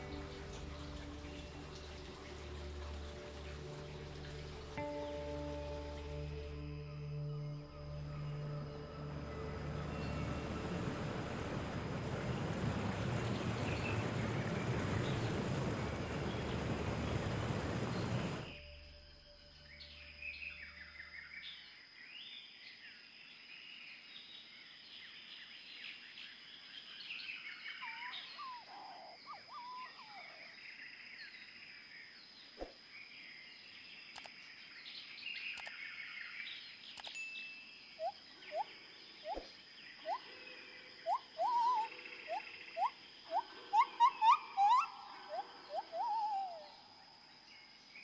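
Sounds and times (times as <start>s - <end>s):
small birds chirping: 27.2s - 30.5s, 33.1s - 48.0s.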